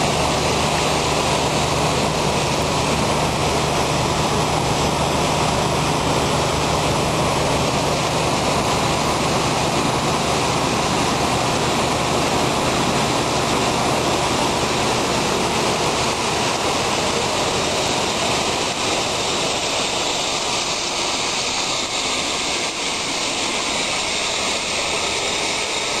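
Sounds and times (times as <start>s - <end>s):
large fans rushing: 0.0s - 26.0s.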